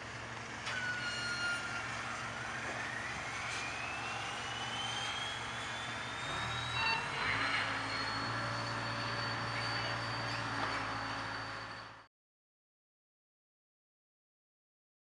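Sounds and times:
whine rising in pitch: 0:00.8 - 0:12.1
low hum: 0:01.9 - 0:06.8.

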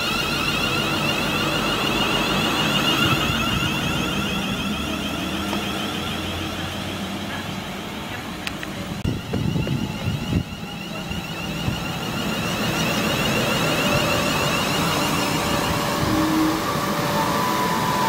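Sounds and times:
electric train running: 0:00.0 - 0:18.0
wind buffeting microphone: 0:09.0 - 0:12.2.

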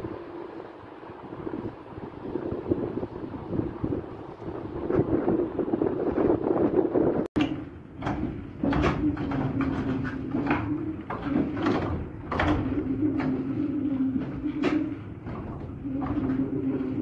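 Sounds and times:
machinery low hum: 0:00.0 - 0:17.0
wind buffeting microphone: 0:00.0 - 0:17.0
wooden knocks and clatters: 0:07.4 - 0:17.0.

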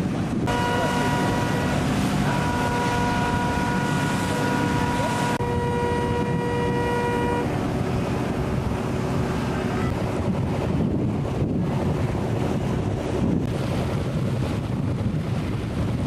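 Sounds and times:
boat engines rumbling: 0:00.0 - 0:16.0
wind buffeting microphone: 0:00.0 - 0:16.0
pitched engine whine: 0:00.4 - 0:11.6.

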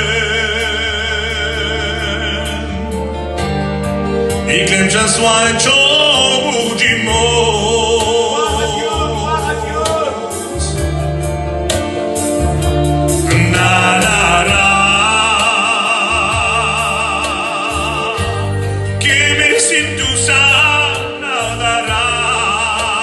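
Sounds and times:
man singing a hymn: 0:00.0 - 0:03.5, 0:04.3 - 0:11.0, 0:13.2 - 0:23.0
amplified music with bass: 0:00.0 - 0:23.0.

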